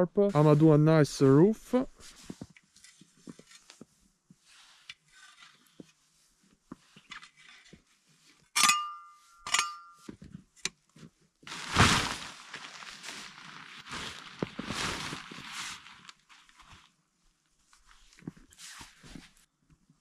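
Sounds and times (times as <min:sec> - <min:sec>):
sharp metallic clinks: 0:08.6 - 0:10.0.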